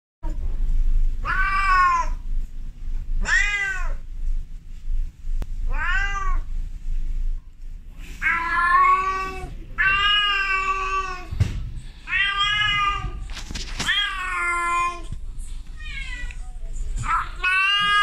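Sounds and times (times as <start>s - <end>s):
cat meowing: 1.2s - 2.2s, 3.2s - 4.0s, 5.7s - 6.5s, 8.2s - 11.3s, 15.8s - 16.4s, 17.0s - 18.0s.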